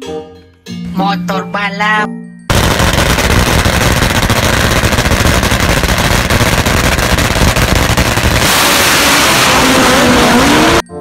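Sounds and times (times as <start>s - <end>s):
loud motorcycle engine: 2.5s - 11.0s.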